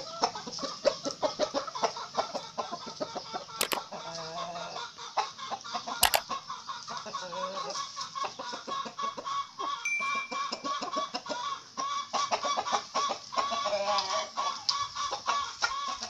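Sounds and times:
chickens clucking: 0.0 - 16.0
sharp clicks: 6.0 - 6.2.

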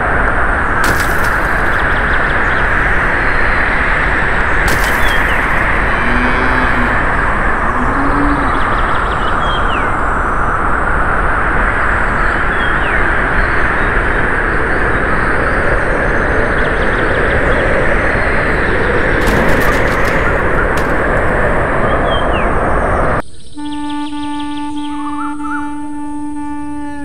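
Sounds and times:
steady rushing noise: 0.0 - 23.2
bird chirps: 0.8 - 3.5, 4.5 - 10.0, 23.2 - 25.8.

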